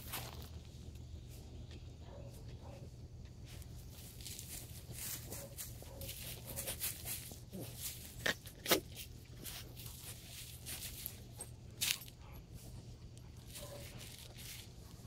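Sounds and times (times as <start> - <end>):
dry leaves crackling and rustling: 0.0 - 0.8, 3.5 - 12.2, 13.4 - 15.0.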